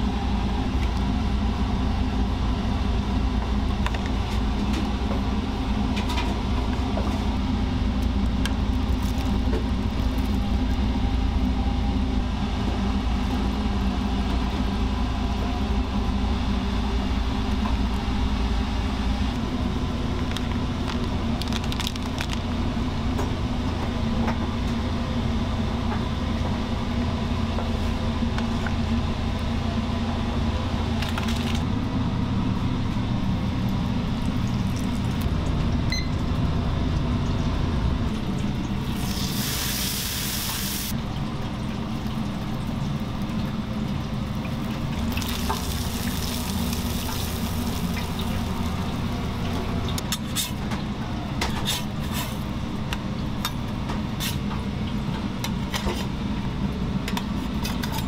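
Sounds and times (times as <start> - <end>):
deep-fryer oil sizzling: 38.2 - 51.0.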